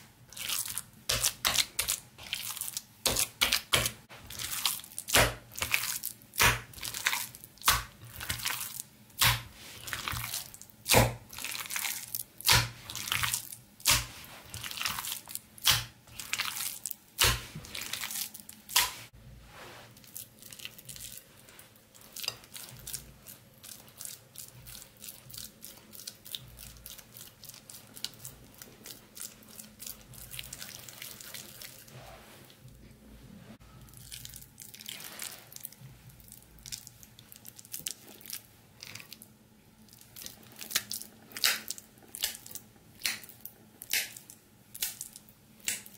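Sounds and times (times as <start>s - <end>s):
hands squelching wet mixture: 0.0s - 33.0s, 33.6s - 45.9s
soft squishing: 0.0s - 45.9s.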